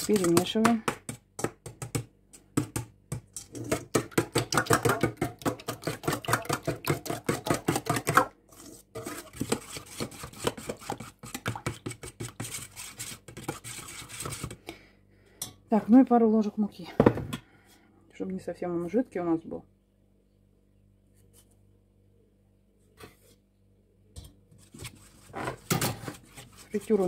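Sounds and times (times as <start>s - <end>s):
spoon clinking and scraping bowl: 5.8s - 14.4s.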